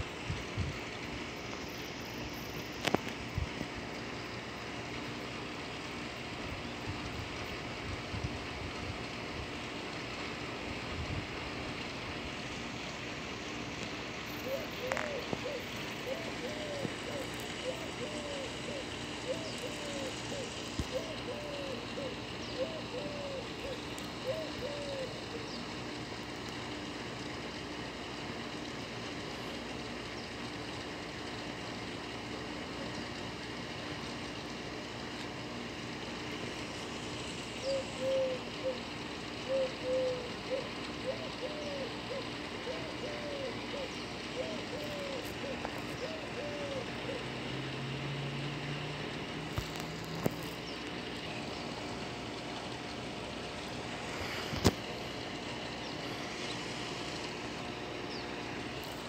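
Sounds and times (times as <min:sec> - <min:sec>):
outdoor background noise: 0:00.0 - 0:59.0
even hiss: 0:47.5 - 0:57.6.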